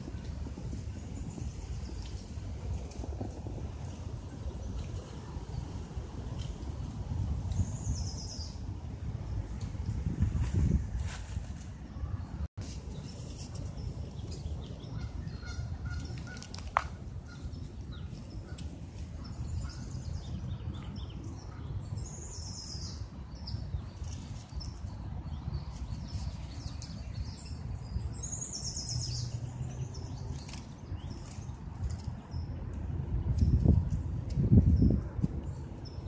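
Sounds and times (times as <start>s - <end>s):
birds chirping: 11.9s - 32.6s.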